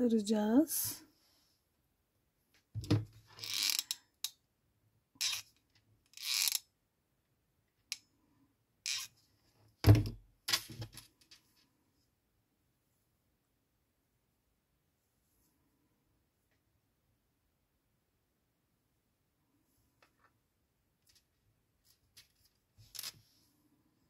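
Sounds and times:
rustles and clicks of yarn handling: 0:09.1 - 0:12.2, 0:19.5 - 0:24.0.

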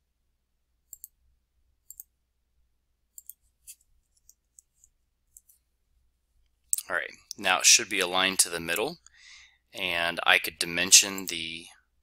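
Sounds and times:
computer mouse clicks: 0:00.9 - 0:01.2, 0:01.8 - 0:02.1, 0:03.1 - 0:05.6.

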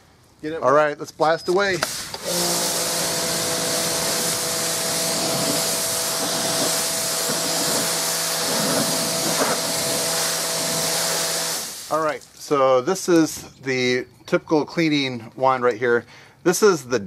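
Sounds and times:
water jet hissing: 0:01.7 - 0:12.2
pressure washer motor humming: 0:01.8 - 0:12.2.

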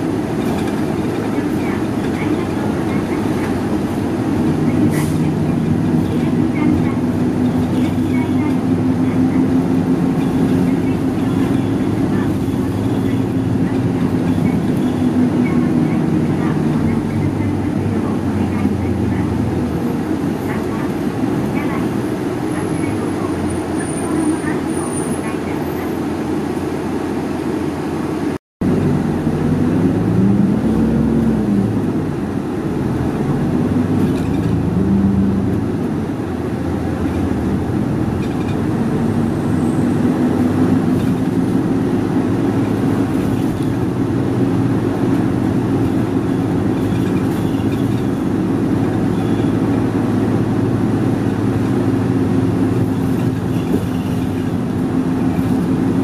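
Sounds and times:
bus diesel engine: 0:00.0 - 0:56.0
road noise: 0:00.0 - 0:56.0.

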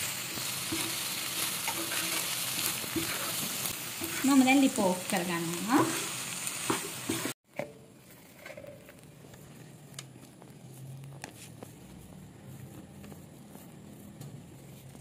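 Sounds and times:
peppers sizzling in frying pan: 0:00.0 - 0:07.4
spatula scraping pan: 0:00.3 - 0:07.4
hands handling dough: 0:08.0 - 0:15.0.

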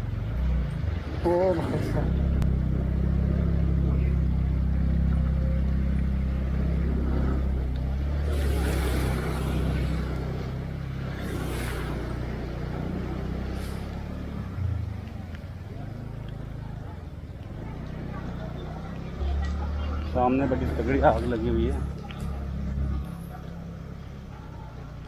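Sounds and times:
scooter engine humming: 0:00.0 - 0:25.0
wheels splashing through water: 0:00.0 - 0:25.0.

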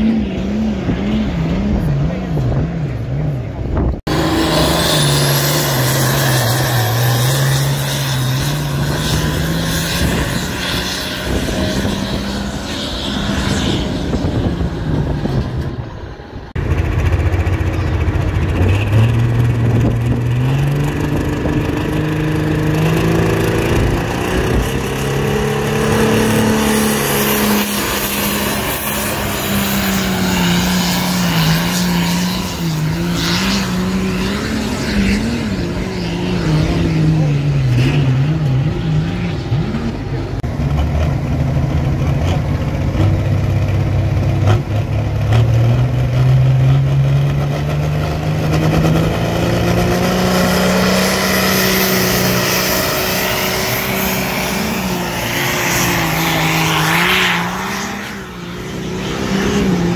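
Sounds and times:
tractor engine running hard: 0:14.2 - 0:33.0, 0:38.4 - 0:57.1.

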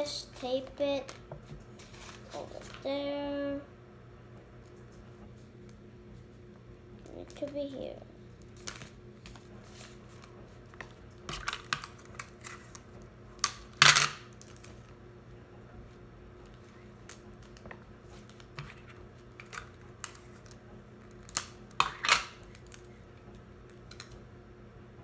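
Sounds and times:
paper rustle: 0:01.8 - 0:02.8
paper and tape clicks and crinkles: 0:08.4 - 0:14.9, 0:16.4 - 0:22.9, 0:23.7 - 0:24.2.

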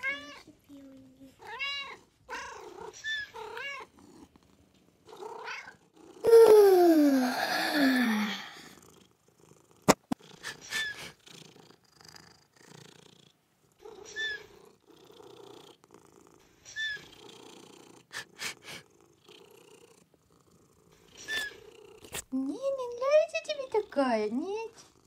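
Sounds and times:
cats purring: 0:00.0 - 0:25.0
short high squeaks: 0:21.2 - 0:21.6.

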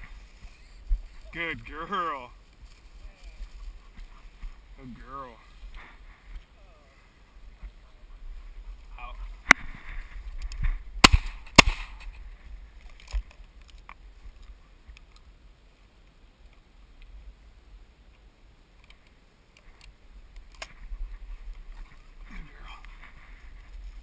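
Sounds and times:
faint field noise: 0:00.0 - 0:24.0
shotgun shots with echo: 0:11.0 - 0:12.0.

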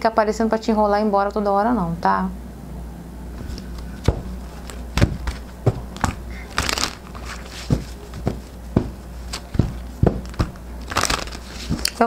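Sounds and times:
cards riffling: 0:03.4 - 0:12.0
card taps and flicks: 0:03.8 - 0:12.0.

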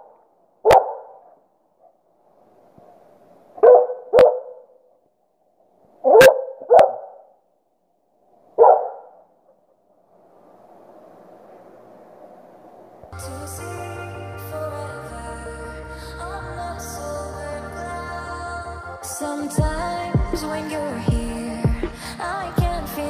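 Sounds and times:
dog barking: 0:00.6 - 0:01.3, 0:03.6 - 0:04.8, 0:06.0 - 0:07.2, 0:08.6 - 0:09.2.

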